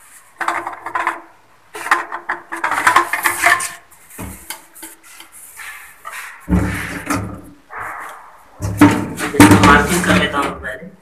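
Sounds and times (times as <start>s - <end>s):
plastic plumbing parts clicking: 0.4s - 5.4s.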